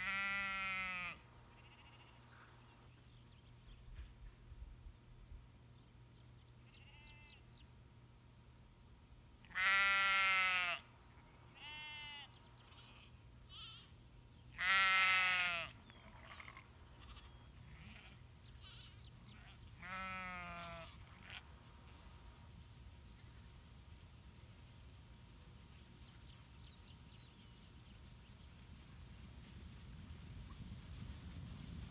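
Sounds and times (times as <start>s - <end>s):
sheep bleating: 0.0s - 2.2s, 9.5s - 10.8s, 11.6s - 13.9s, 14.6s - 21.5s.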